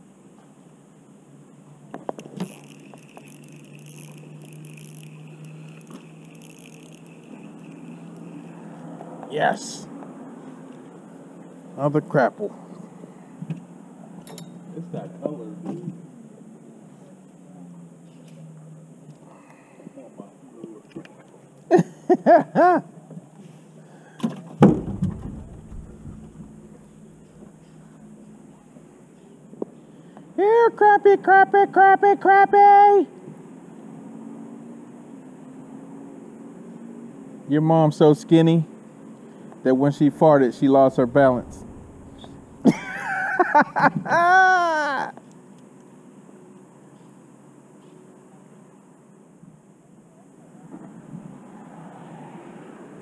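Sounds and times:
fishing reel whirring: 2.2s - 8.8s
sharp clicks and knocks: 24.2s - 27.8s
heavy thump: 24.6s - 27.6s, 40.9s - 42.8s.

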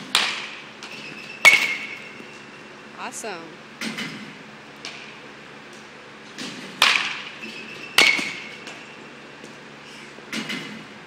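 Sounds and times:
bat striking baseball: 0.0s - 0.6s, 1.4s - 2.1s, 6.4s - 7.4s, 8.0s - 8.6s.

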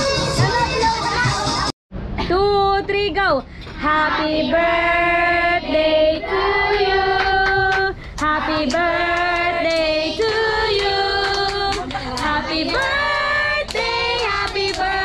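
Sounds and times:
children and women singing: 3.8s - 15.0s.

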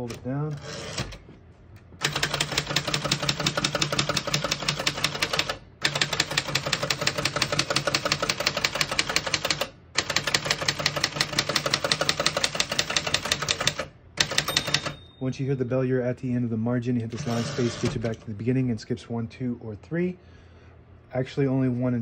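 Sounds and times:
manual typewriter keystrokes: 2.0s - 15.0s.

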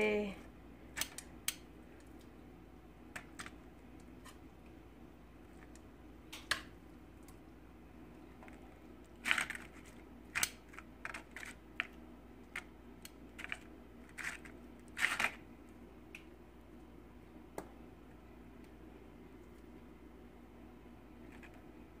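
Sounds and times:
tortilla chips crackling: 8.6s - 15.4s.

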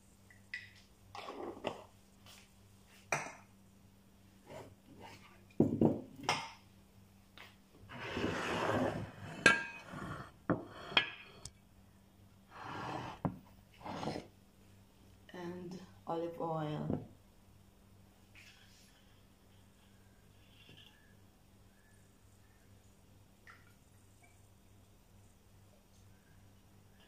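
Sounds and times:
pots and jars clinking: 9.4s - 11.5s.

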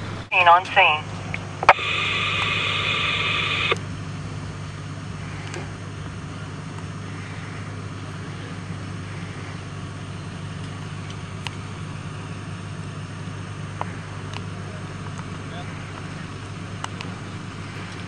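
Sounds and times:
vehicle engine idling: 0.0s - 18.0s
steady hiss: 1.7s - 3.8s.

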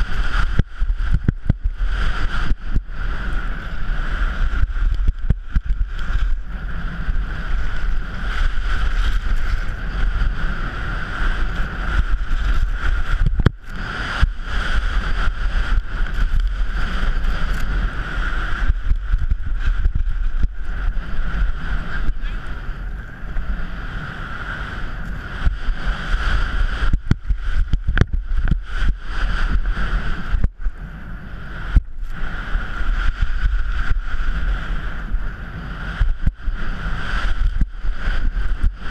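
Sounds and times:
skis scraping on packed snow: 0.0s - 30.5s, 31.4s - 38.9s
wind buffeting microphone: 0.0s - 38.9s.

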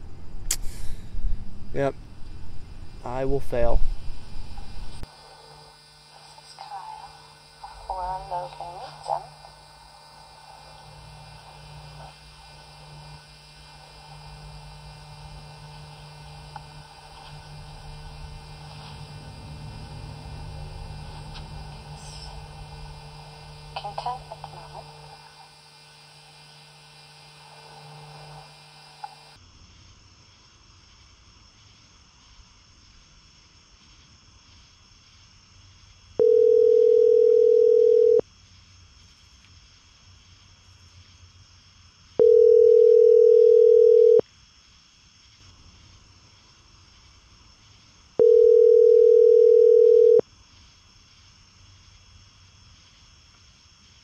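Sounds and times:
night insects chirping: 0.0s - 54.0s
camcorder hum: 3.7s - 29.4s
telephone ringback tone: 36.2s - 38.2s, 42.2s - 44.2s, 48.2s - 50.2s.

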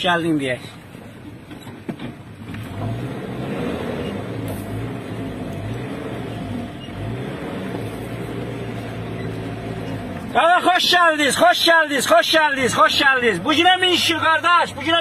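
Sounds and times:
car engine humming from inside: 2.2s - 11.1s.

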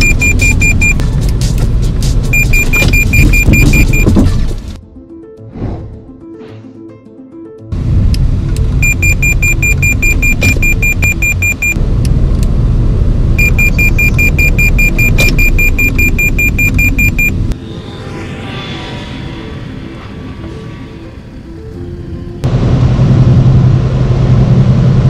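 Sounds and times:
rapid high warning beeps: 0.0s - 1.0s, 2.4s - 4.2s, 8.8s - 11.8s, 13.4s - 17.4s
tyre and engine rumble in car: 0.0s - 4.8s.

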